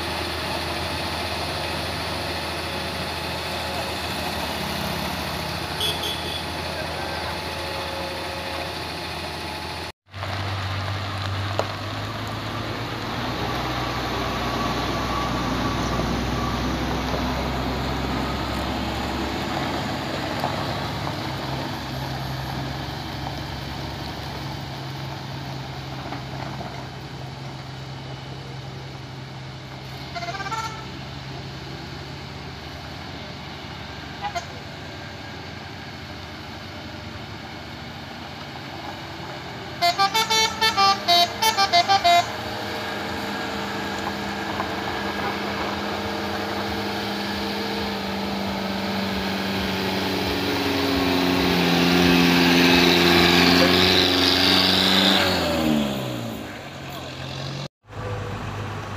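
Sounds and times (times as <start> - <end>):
engine revving: 0.0 - 24.7, 40.1 - 58.9
vehicle engines running: 0.0 - 58.9
short horn toots: 5.7 - 8.9, 30.0 - 31.0, 34.2 - 34.6, 39.8 - 42.4.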